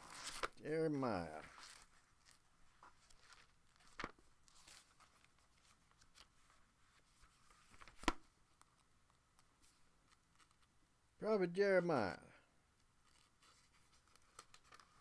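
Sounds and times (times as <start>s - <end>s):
paper pages rustling: 0.0s - 0.6s, 1.4s - 10.7s, 13.0s - 15.0s.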